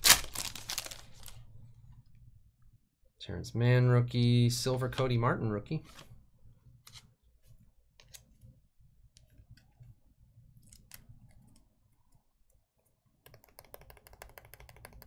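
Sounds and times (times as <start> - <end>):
trading cards clicking and tapping: 13.2 - 15.0.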